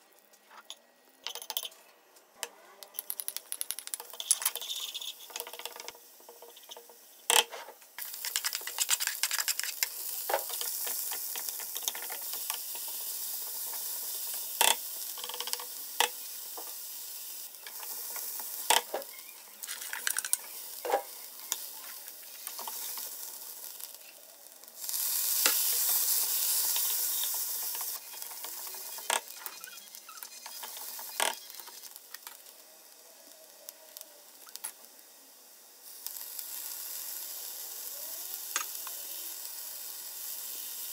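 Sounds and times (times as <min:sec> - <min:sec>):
oil sizzling in a wok: 0:03.0 - 0:40.9.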